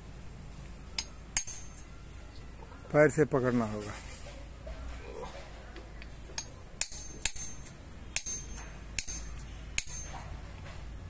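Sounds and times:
hammer striking steel chisel on stone: 1.0 - 1.9, 6.4 - 10.2.

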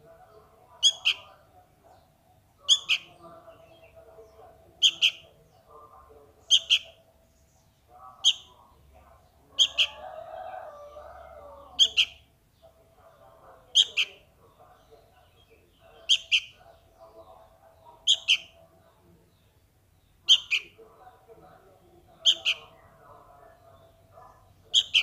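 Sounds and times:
bird fledgling begging calls: 0.8 - 1.3, 2.7 - 4.0, 4.8 - 5.3, 6.5 - 6.9, 9.6 - 10.0, 11.4 - 12.2, 15.3 - 16.6, 18.0 - 18.6, 20.0 - 20.8, 22.2 - 22.8, 24.7 - 25.0.

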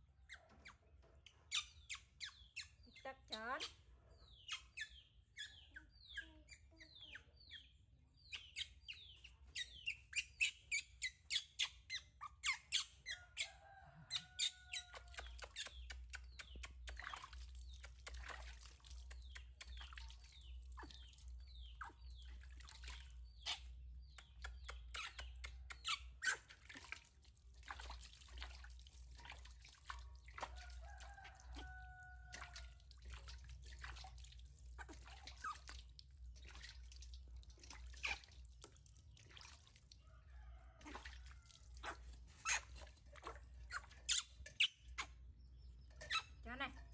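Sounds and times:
baby monkey squealing: 9.6 - 13.5
water splashing and dripping: 12.8 - 46.7.

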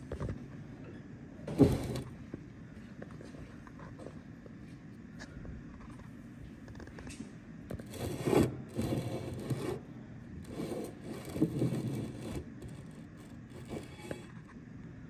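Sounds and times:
metal liner scraping on steel table: 1.5 - 2.2, 7.7 - 14.5.

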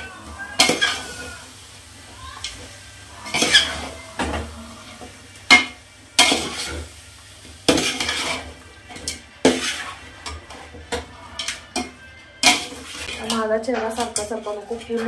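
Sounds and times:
sizzling: 0.0 - 15.0
spatula scraping metal pot: 3.2 - 4.0, 7.7 - 15.0.

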